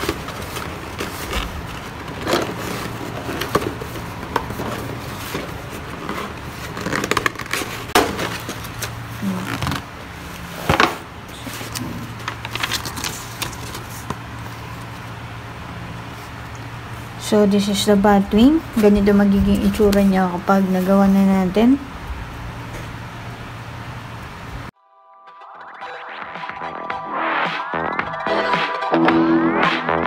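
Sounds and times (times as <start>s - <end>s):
rustling of plastic bagged parts: 0.0s - 15.2s
low steady hum: 0.0s - 24.8s.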